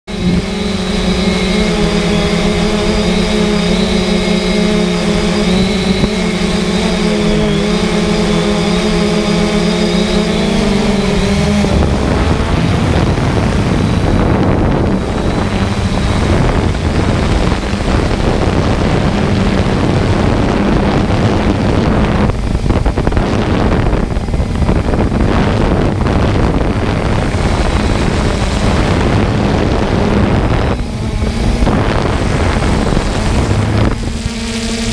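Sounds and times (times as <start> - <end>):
drone motors humming and whining: 0.0 - 34.9
wind noise on microphone: 0.0 - 34.9.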